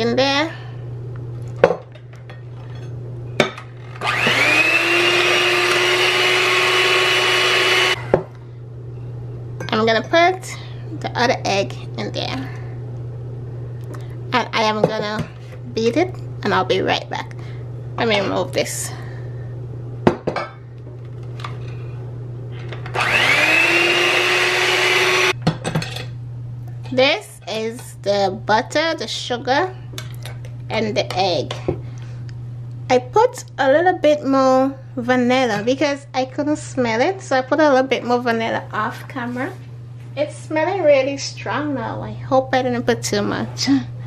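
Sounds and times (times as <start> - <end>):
electric hand mixer whining: 3.8 - 8.3, 22.8 - 25.4.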